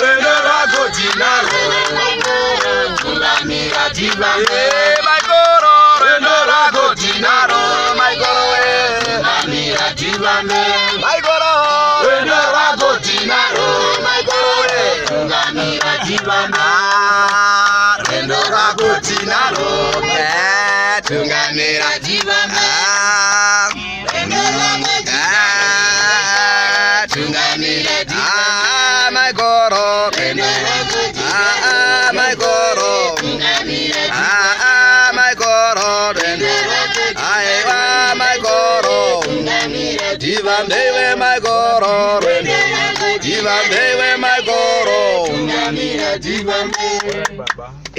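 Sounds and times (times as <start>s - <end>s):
group singing together: 0.0s - 47.6s.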